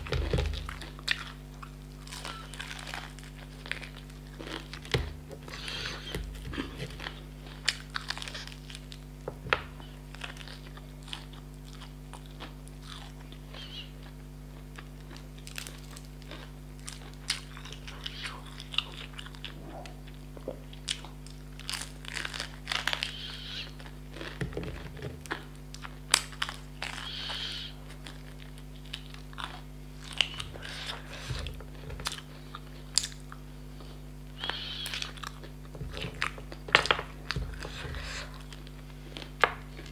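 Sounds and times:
crunching and chewing: 0:00.0 - 0:39.9
steady low hum: 0:00.0 - 0:39.9.

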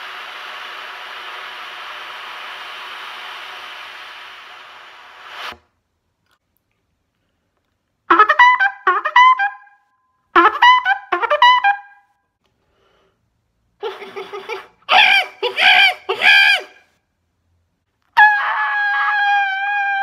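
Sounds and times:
trumpet bouncing notes: 0:08.1 - 0:09.7, 0:10.4 - 0:12.0.

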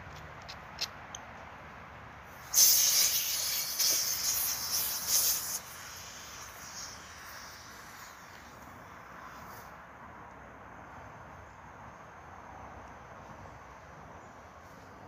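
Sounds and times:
gas cartridge hissing: 0:02.3 - 0:08.7.

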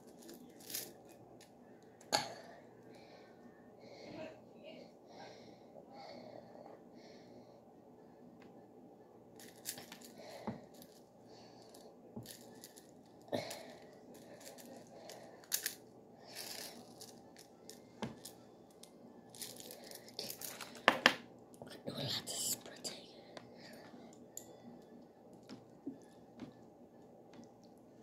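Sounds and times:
plastic cup rustling: 0:19.3 - 0:21.1.

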